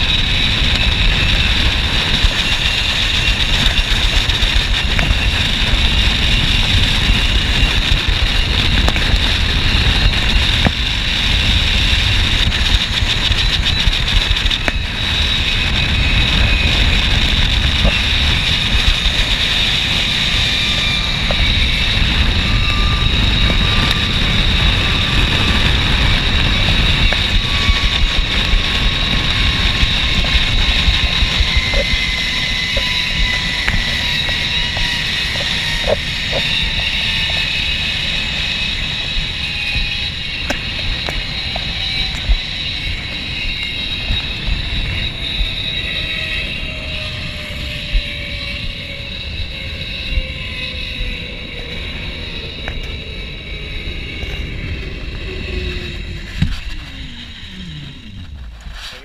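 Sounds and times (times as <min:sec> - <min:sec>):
wind rumble on microphone: 0:00.0 - 0:59.0
zipline pulleys rolling on cable: 0:00.0 - 0:59.0.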